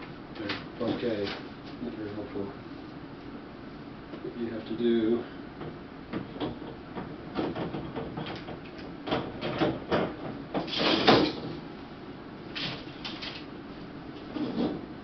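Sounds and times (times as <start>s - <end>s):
light metal knocks and clatters: 5.6s - 11.5s
scraping rustle: 14.2s - 14.9s.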